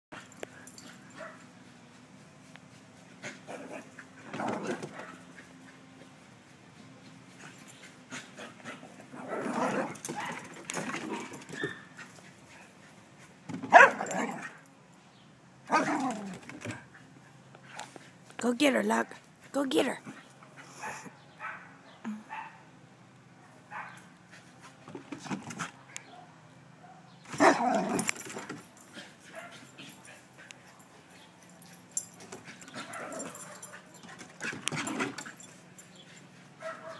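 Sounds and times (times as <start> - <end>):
small dogs yipping and whining: 11.5 - 12.0
dogs barking: 13.7 - 14.6, 20.8 - 22.6, 23.5 - 24.1, 26.0 - 28.1, 32.7 - 35.2, 36.6 - 36.9.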